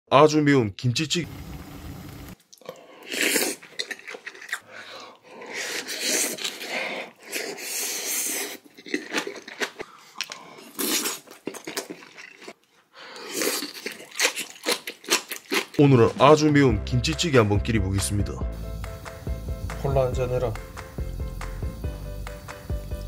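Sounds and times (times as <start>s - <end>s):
man slurping and puffing: 2.5s - 9.1s.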